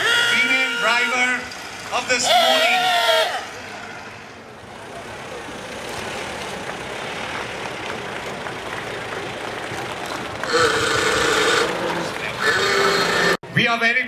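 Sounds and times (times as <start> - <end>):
car engine running: 3.6 - 13.4.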